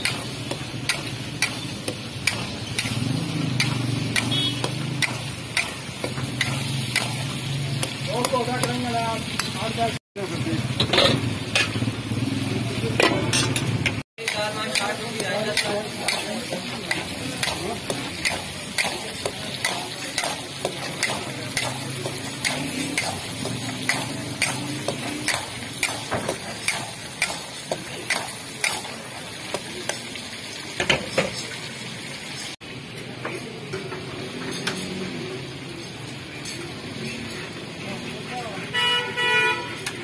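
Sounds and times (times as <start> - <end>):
metal utensil scraping a pan: 0.0 - 9.8, 10.6 - 11.9, 12.9 - 29.0
meat sizzling in oil: 0.0 - 33.1.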